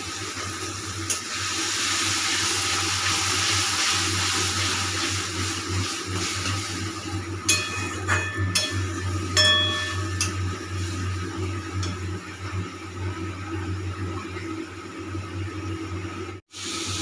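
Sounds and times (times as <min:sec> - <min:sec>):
faint frying sizzle: 0:00.0 - 0:17.0
low steady hum: 0:07.4 - 0:16.4
metal spatula clinking on pan: 0:07.5 - 0:10.4.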